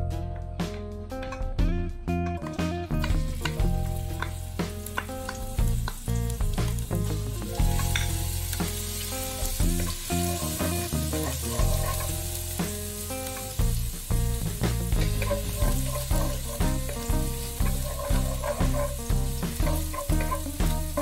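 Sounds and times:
guitar music with bass line: 0.0s - 21.0s
garlic sizzling in hot oil: 2.9s - 21.0s
wooden spatula stirring in wok: 10.6s - 12.7s, 14.9s - 21.0s.

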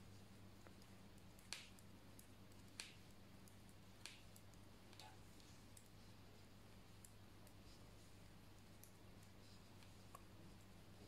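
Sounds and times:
low steady hum: 0.0s - 11.0s
knitting needles clicking: 0.6s - 6.0s.

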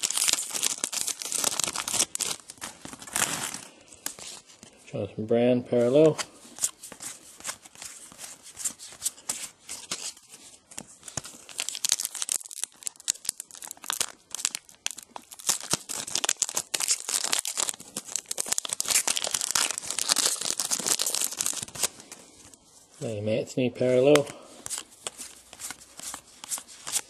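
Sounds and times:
wrapper tearing and crinkling: 0.0s - 4.6s, 11.0s - 22.2s.

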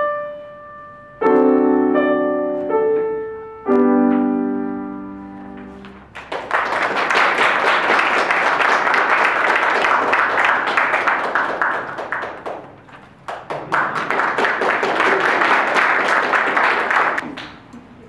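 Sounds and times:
audience applauding: 6.0s - 17.7s.

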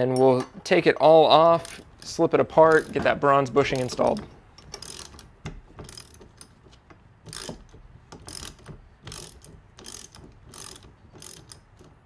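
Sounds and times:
ratchet wrench clicking: 1.6s - 3.0s, 3.8s - 6.6s, 7.3s - 11.9s.

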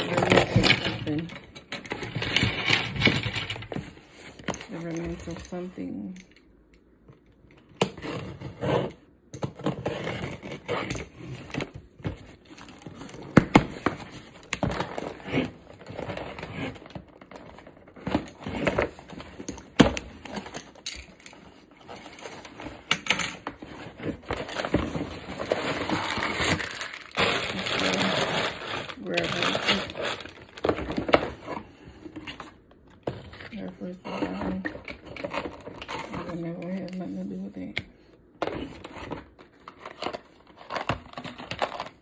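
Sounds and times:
cardboard box crinkling and tearing: 23.9s - 31.5s.

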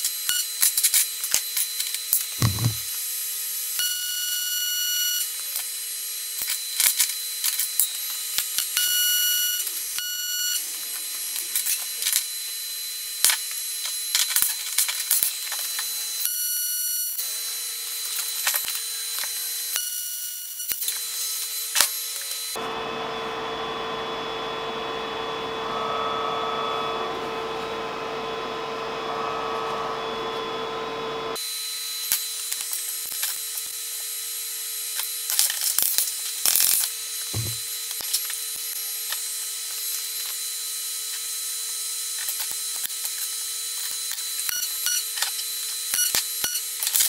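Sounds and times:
tools handled on steel bench: 2.4s - 2.8s, 37.4s - 37.6s
welder hissing: 37.3s - 37.6s
dull thud: 37.4s - 37.6s.

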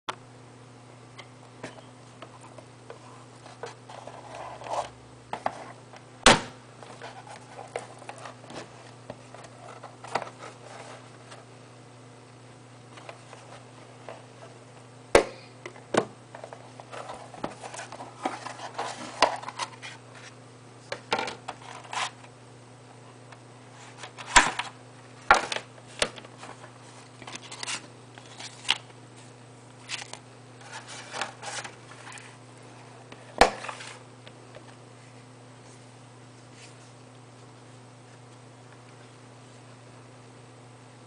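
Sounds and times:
sharp knocks on box: 6.2s - 6.6s
cardboard box rustling: 16.4s - 20.3s.

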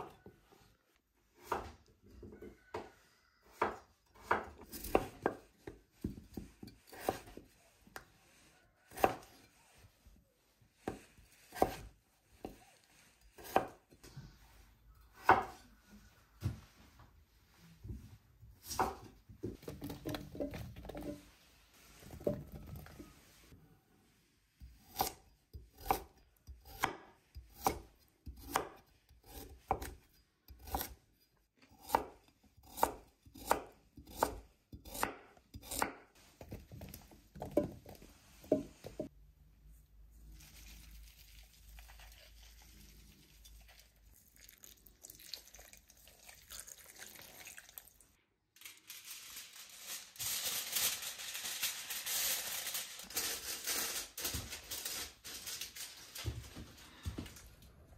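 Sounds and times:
knife chopping on cutting board: 10.8s - 12.6s, 24.9s - 30.0s, 31.8s - 36.6s.

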